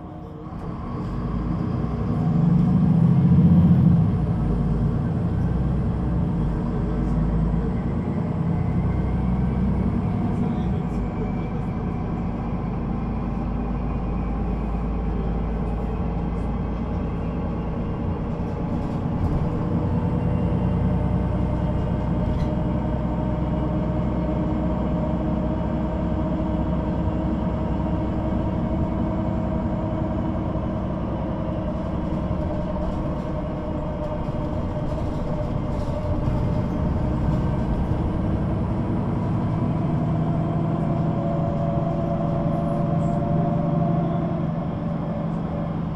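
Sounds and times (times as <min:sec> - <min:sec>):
bus engine running: 0:00.0 - 0:45.9.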